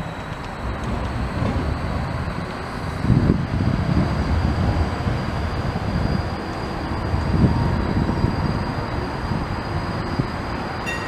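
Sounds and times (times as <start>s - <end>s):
tram wheels rumbling on rails: 0.0s - 11.0s.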